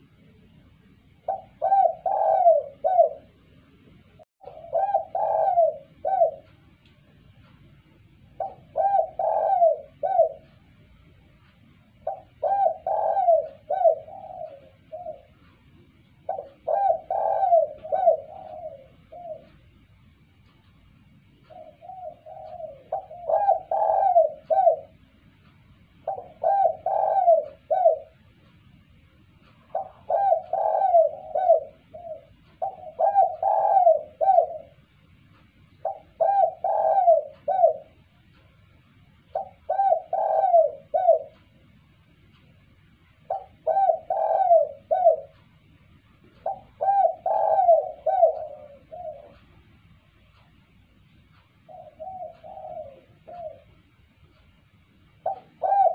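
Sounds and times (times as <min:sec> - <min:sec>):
dove cooing: 0:00.0 - 0:03.5, 0:04.1 - 0:07.4, 0:08.0 - 0:11.1, 0:11.8 - 0:25.2, 0:25.9 - 0:28.5, 0:29.5 - 0:35.0, 0:35.7 - 0:38.6, 0:39.2 - 0:41.7, 0:43.0 - 0:49.7, 0:51.4 - 0:54.4, 0:55.1 - 0:55.9.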